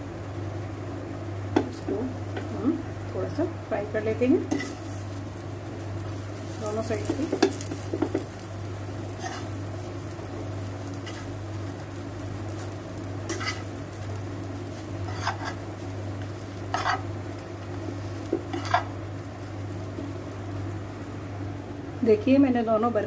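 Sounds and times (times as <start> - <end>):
buns sizzling in a pan: 0.0 - 23.0
spatula scraping and clinking pan: 15.1 - 15.6, 16.7 - 17.0.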